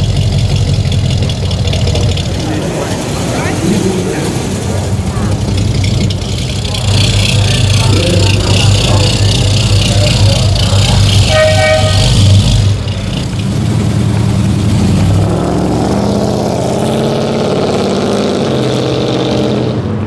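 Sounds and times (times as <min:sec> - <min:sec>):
car engine rumbling: 0:00.0 - 0:20.0
car horn blast: 0:11.1 - 0:12.7.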